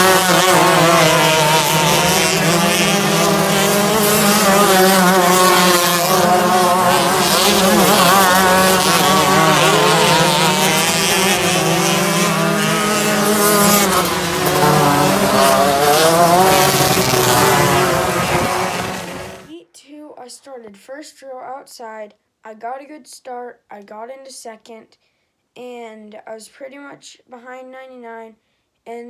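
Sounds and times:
kart engines racing: 0.0 - 19.5.

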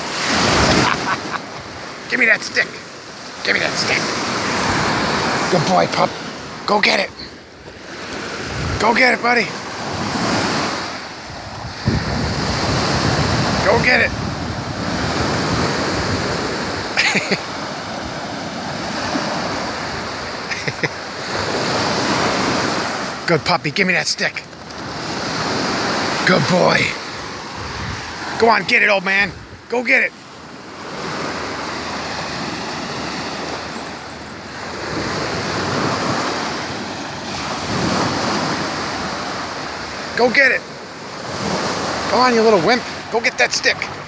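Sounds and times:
small waves breaking on shore: 0.0 - 44.0
wind buffeting microphone: 8.4 - 8.9, 11.2 - 16.5, 27.4 - 28.2.

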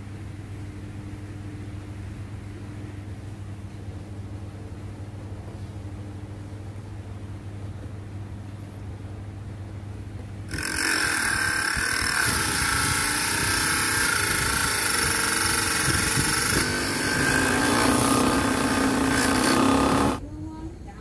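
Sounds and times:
abrasive disc grinding plastic: 10.5 - 20.2.

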